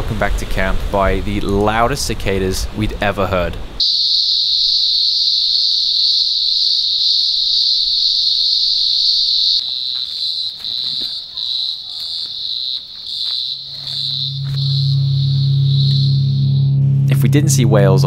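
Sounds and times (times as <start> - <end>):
cicadas buzzing: 3.7 - 16.8
low music note: 14.2 - 18.0.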